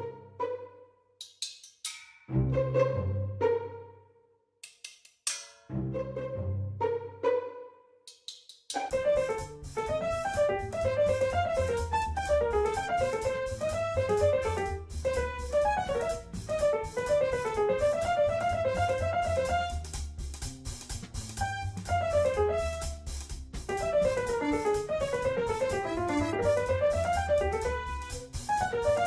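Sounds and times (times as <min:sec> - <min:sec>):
keyboard music with drums and bass: 0:08.8 - 0:29.0.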